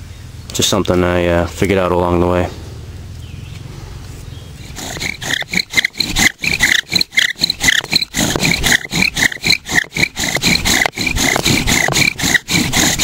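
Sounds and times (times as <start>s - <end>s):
bow drill spindle squeaking: 4.6s - 13.0s.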